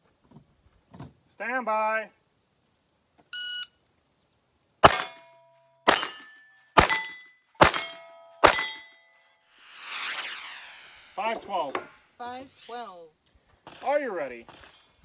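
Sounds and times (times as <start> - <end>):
pistol shots: 4.8 - 5.2, 5.8 - 6.2, 6.8 - 8.8
steel target ringing: 4.8 - 9.1.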